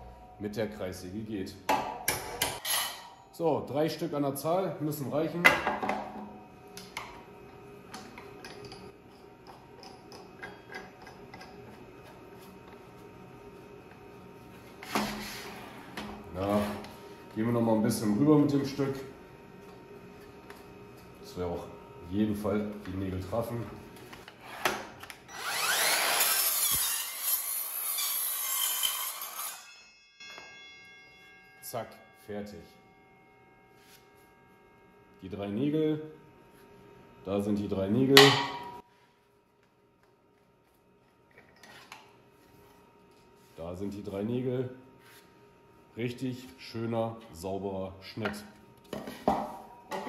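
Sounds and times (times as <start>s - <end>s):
faint hum: 2.9s - 25.4s, 30.3s - 50.0s
circular saw cutting wood: 25.3s - 29.8s.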